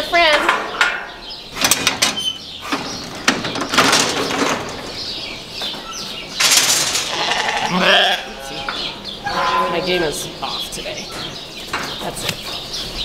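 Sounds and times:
metal gates clanking: 0:00.2 - 0:05.2, 0:05.8 - 0:07.7, 0:08.4 - 0:10.6.

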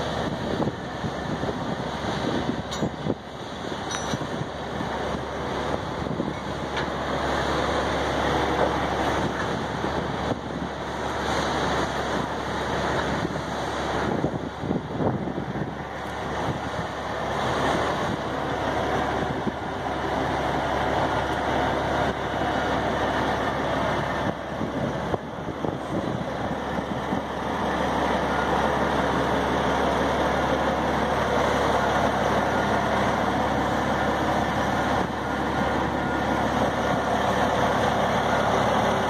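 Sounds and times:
wind on microphone: 0:00.0 - 0:06.7, 0:08.7 - 0:18.4, 0:23.8 - 0:27.4
trucks and road traffic: 0:00.0 - 0:39.0.

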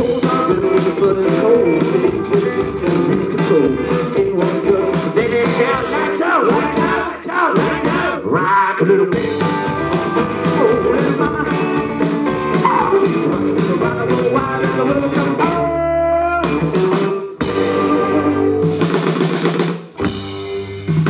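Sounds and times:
electric guitars: 0:00.0 - 0:08.2, 0:09.1 - 0:19.4, 0:20.0 - 0:21.0
man singing: 0:00.0 - 0:09.8, 0:10.4 - 0:18.6
upright double bass: 0:09.2 - 0:16.8.

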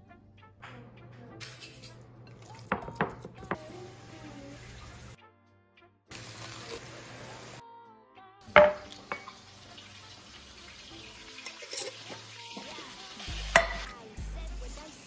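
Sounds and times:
background music: 0:00.0 - 0:15.0
patties sizzling in a skillet: 0:03.5 - 0:05.2, 0:06.1 - 0:07.6, 0:08.5 - 0:15.0.

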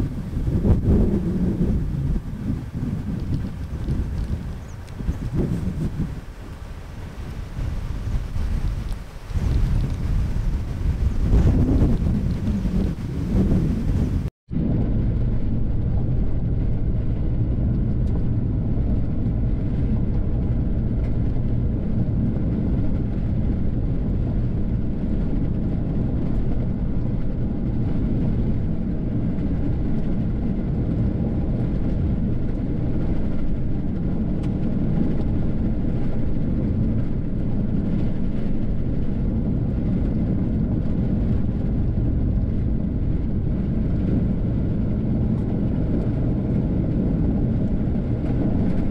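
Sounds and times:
car driving on gravel: 0:00.0 - 0:14.3.

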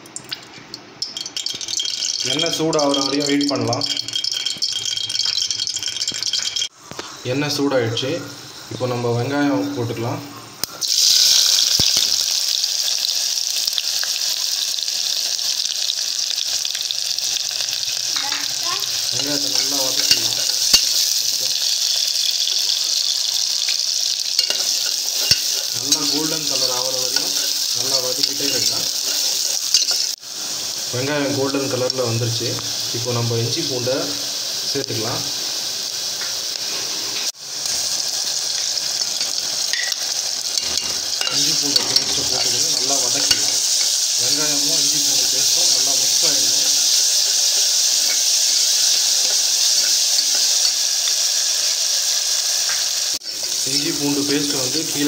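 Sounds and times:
onions sizzling in hot oil: 0:01.0 - 0:55.0
ladle scraping and clicking on pot: 0:24.4 - 0:26.2.

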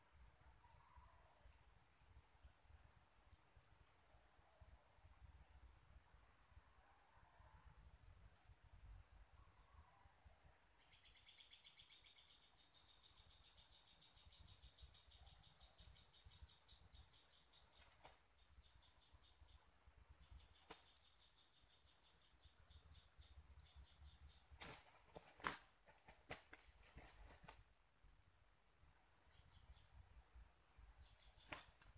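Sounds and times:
insects chirping: 0:00.0 - 0:31.9
roosters flapping and scuffling: 0:17.7 - 0:18.2, 0:24.6 - 0:27.6, 0:31.4 - 0:31.9.

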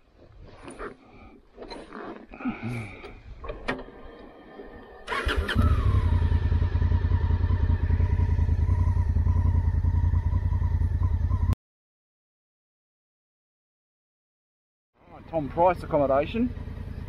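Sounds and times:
starter motor whirr: 0:03.1 - 0:07.5
motorcycle engine idling: 0:05.1 - 0:11.6, 0:15.0 - 0:17.0.

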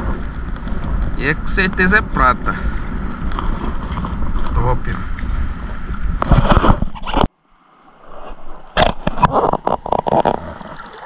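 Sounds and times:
wind on microphone: 0:00.0 - 0:07.3
water moving around wading person: 0:00.0 - 0:11.0.

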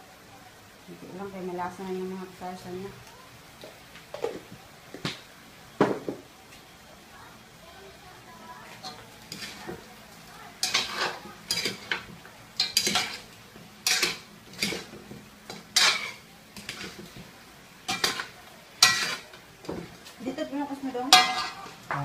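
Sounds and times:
metal ladle scraping pot: 0:17.9 - 0:19.3.

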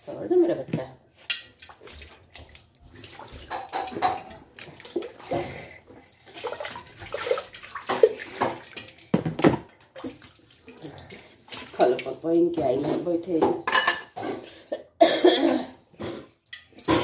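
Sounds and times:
water splashing and running: 0:00.1 - 0:13.4
metal dishes clinking: 0:01.2 - 0:01.7, 0:03.4 - 0:04.4, 0:12.8 - 0:15.0, 0:16.0 - 0:17.0.

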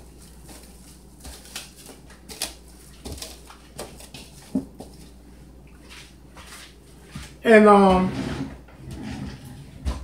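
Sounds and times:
plastic wrap crinkling: 0:00.0 - 0:05.2.

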